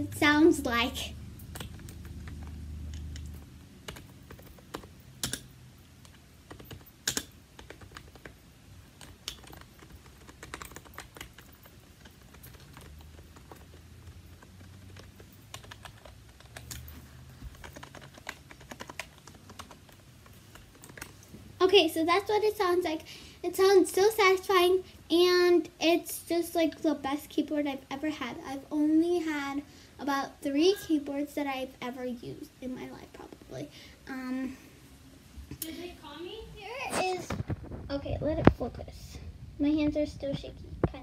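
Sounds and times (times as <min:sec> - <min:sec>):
keyboard typing: 0:01.4 - 0:21.3.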